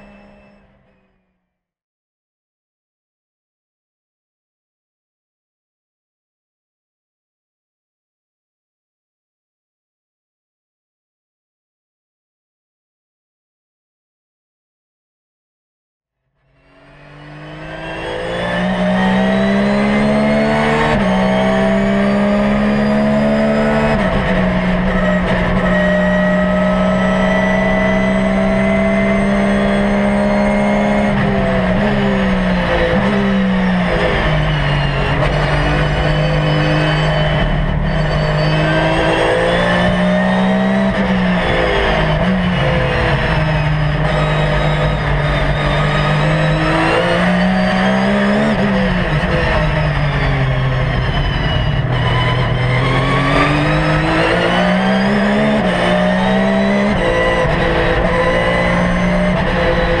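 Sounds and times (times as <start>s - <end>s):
race car engine revving: 16.6s - 60.0s.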